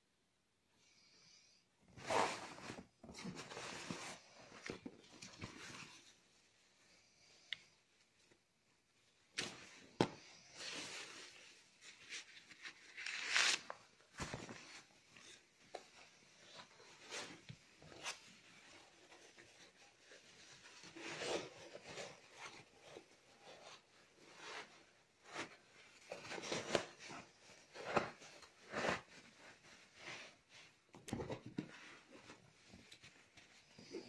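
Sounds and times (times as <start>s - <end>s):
rustling of fabric padding: 7.9s - 34.0s.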